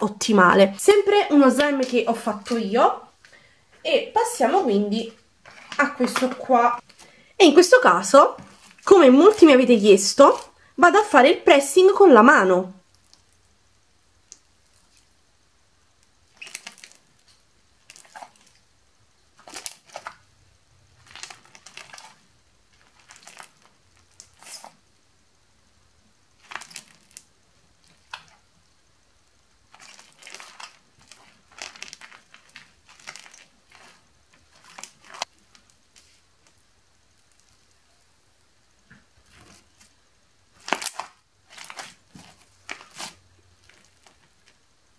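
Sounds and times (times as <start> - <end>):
slime crackling and popping: 12.8 - 13.6, 14.2 - 15.2, 15.9 - 18.7, 19.3 - 20.3, 21.0 - 24.8, 26.3 - 28.5, 29.3 - 38.0, 40.5 - 44.7.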